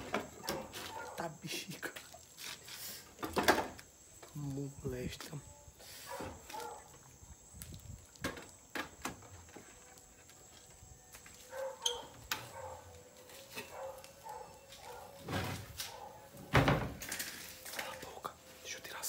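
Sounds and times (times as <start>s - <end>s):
wooden planks knocking and scraping: 3.2s - 3.8s.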